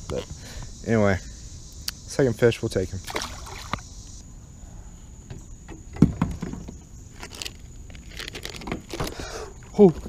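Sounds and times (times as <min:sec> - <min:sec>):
handling noises: 0:05.3 - 0:10.0.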